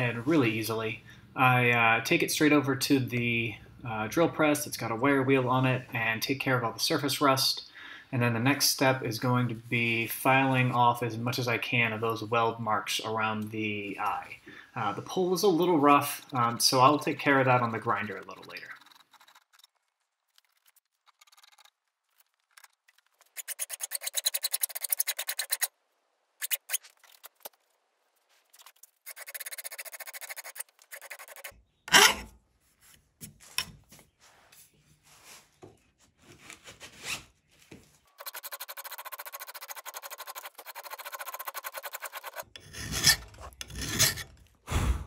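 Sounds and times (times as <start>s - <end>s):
hand file rasping on steel: 38.2s - 44.3s.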